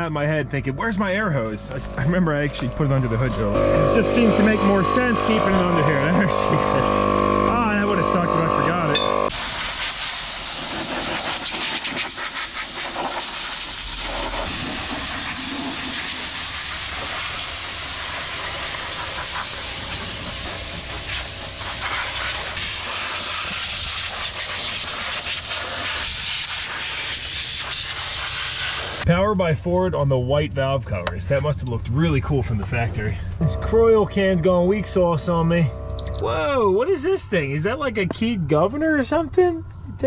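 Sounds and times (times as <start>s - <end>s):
compressed air blow gun hissing: 9.3s - 29.0s.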